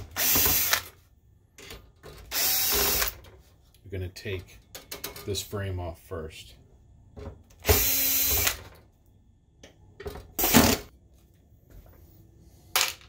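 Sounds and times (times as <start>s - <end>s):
cordless drill spinning: 0.1s - 0.9s, 2.3s - 3.2s, 7.6s - 8.6s.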